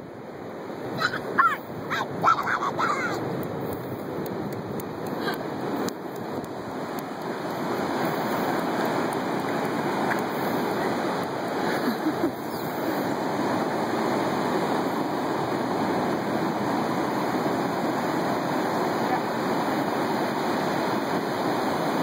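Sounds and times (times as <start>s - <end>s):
ocean surf breaking on beach: 0.0s - 22.0s.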